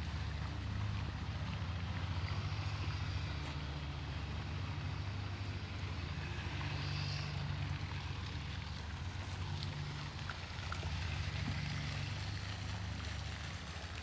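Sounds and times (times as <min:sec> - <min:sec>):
low motor drone: 0:00.0 - 0:14.0.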